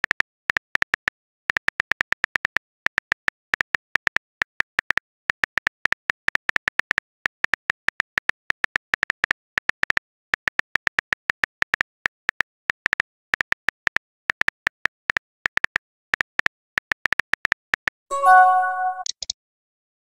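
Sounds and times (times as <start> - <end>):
phone keyboard typing clicks: 18.1 - 19.3.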